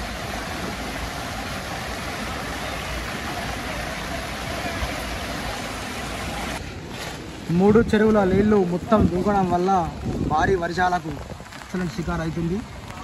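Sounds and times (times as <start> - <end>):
floodwater rushing: 0.0 - 13.0.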